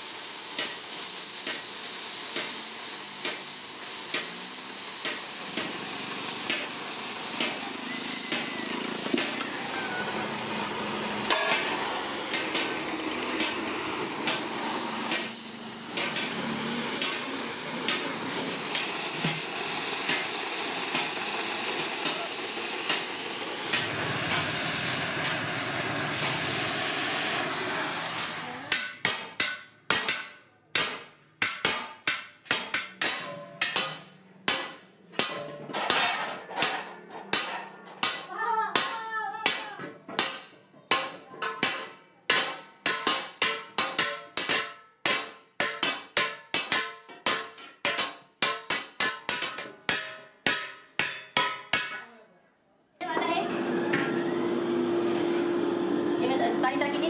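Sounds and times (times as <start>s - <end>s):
gas welding torch hissing: 0.0s - 28.7s
hand hammers beating metal: 5.0s - 24.5s, 28.7s - 52.1s.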